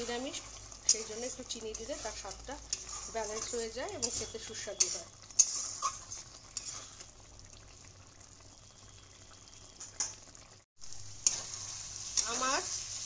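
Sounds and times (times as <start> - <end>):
spoon stirring scrapes: 0.0 - 7.1
curry bubbling and sizzling: 0.0 - 13.0.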